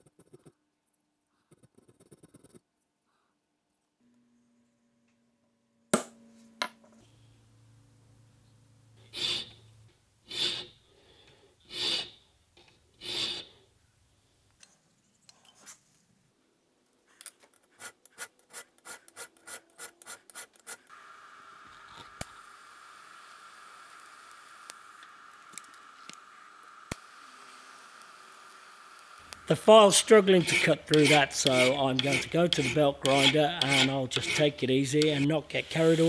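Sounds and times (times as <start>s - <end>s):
file strokes on steel: 9.1s - 9.7s, 10.3s - 10.8s, 11.6s - 12.2s, 13.0s - 13.6s, 29.5s - 36.0s.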